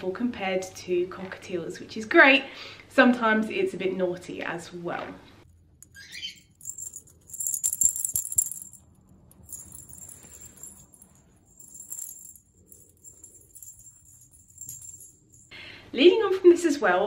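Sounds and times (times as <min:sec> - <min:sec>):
toy ball bell jingling: 0:05.8 - 0:15.6.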